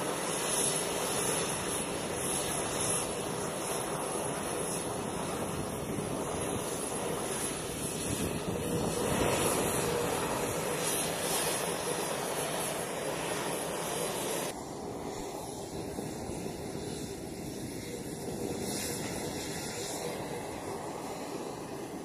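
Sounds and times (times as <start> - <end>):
jet engines rushing: 0.0 - 22.0.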